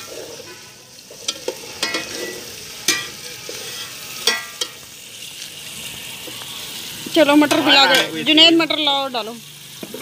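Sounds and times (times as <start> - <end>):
spices sizzling in oil: 0.0 - 10.0
metal spoon clinking in steel pot: 1.2 - 4.8.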